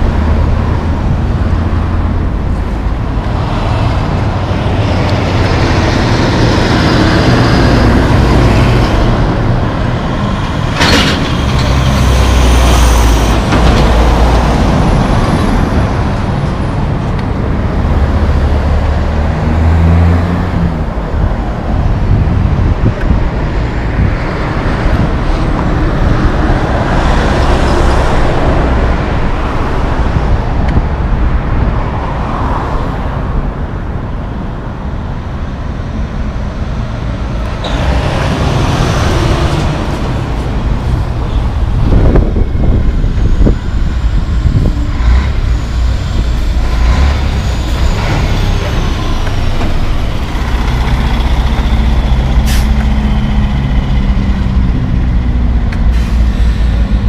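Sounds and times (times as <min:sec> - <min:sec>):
traffic passing: 0:00.0 - 0:57.0
truck diesel engine running: 0:37.2 - 0:57.0
air brake hiss: 0:52.4 - 0:52.8, 0:55.9 - 0:56.8.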